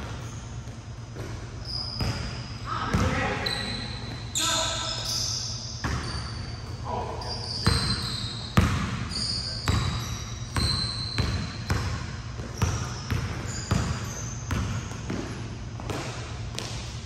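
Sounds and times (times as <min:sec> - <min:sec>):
basketball bouncing on hard court: 0:00.0 - 0:04.2, 0:05.8 - 0:06.8, 0:07.6 - 0:16.9
sneaker squeaks: 0:00.0 - 0:17.0.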